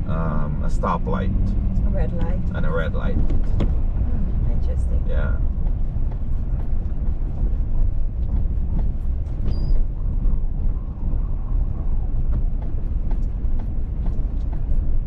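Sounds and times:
car engine and tyres rumbling: 0.0 - 15.0
brief high squeak: 9.5 - 9.8.

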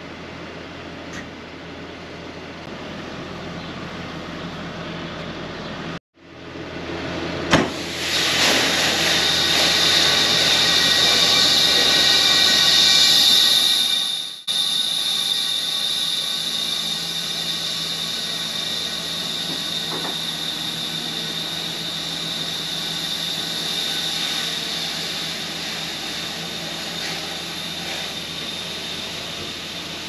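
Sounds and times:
grain machinery whining: 7.7 - 30.0.

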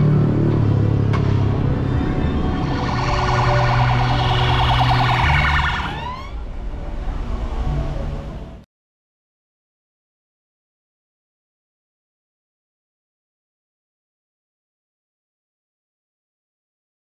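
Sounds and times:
background music with low bass: 0.0 - 8.6
warbling siren: 1.9 - 6.5.

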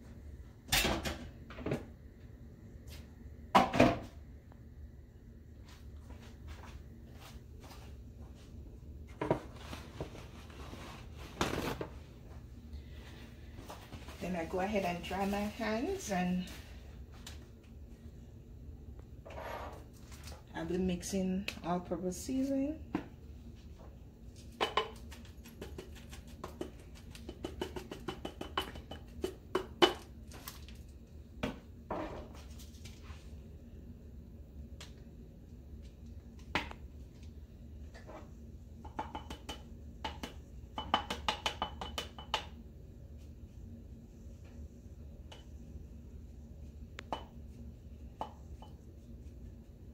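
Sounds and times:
sharp knocks in kitchen: 3.5 - 4.1, 38.8 - 42.5.

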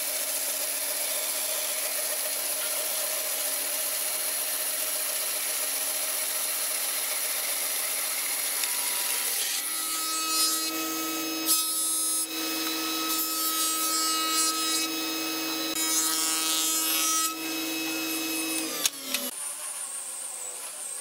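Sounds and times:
cutter rasping through wood: 0.0 - 21.0
spindle moulder humming: 9.6 - 19.3.

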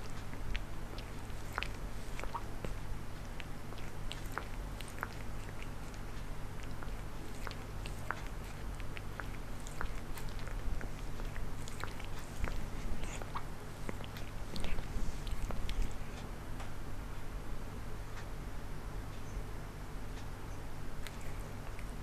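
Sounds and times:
cat licking its fur: 0.0 - 16.2, 21.0 - 22.0
steady low hum: 0.0 - 22.0.

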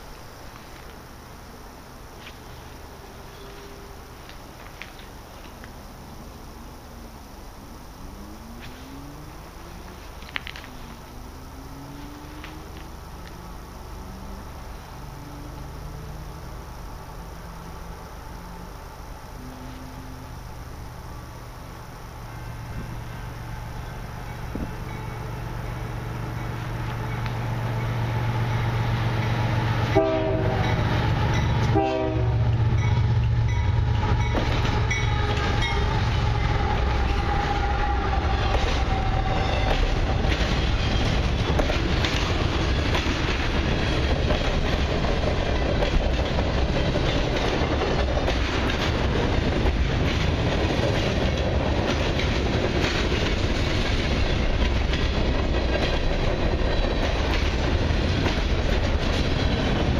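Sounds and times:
diesel locomotive engine rumble: 0.0 - 59.9
train wheels clicking over rail joints: 2.2 - 5.8, 8.6 - 13.6, 22.2 - 59.9
locomotive horn toots: 3.3 - 4.3, 29.4 - 40.1.

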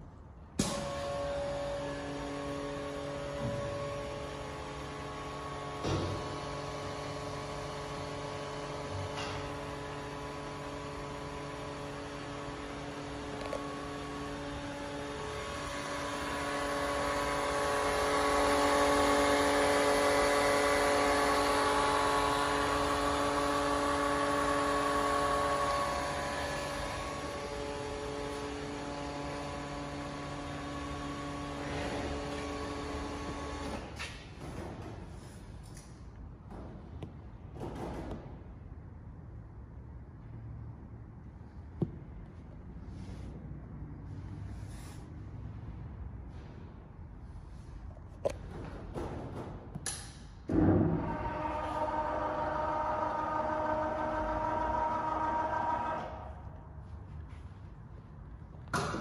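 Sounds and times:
mixer electric hum: 0.0 - 34.3, 50.4 - 59.0
vacuum pump: 0.6 - 35.5, 50.5 - 59.0.

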